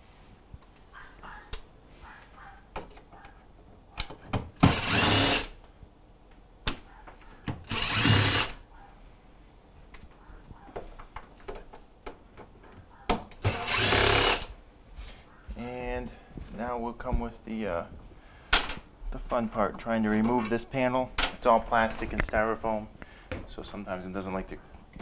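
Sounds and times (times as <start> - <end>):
cordless drill bursts: 4.6 - 5.6, 7.6 - 8.6, 13.5 - 14.6
handling clicks and knocks: 9.9 - 13.5.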